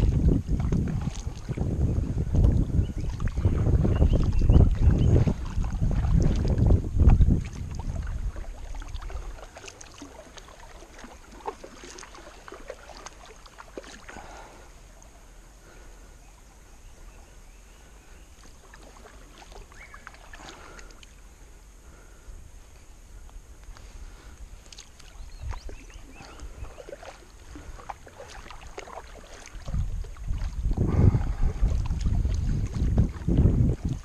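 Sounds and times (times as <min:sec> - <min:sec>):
wind buffeting microphone: 0:00.0 - 0:10.6, 0:23.1 - 0:34.0
paddle splashing water: 0:00.0 - 0:34.0
water dripping off paddle: 0:02.3 - 0:15.2, 0:18.4 - 0:21.2, 0:23.2 - 0:34.0.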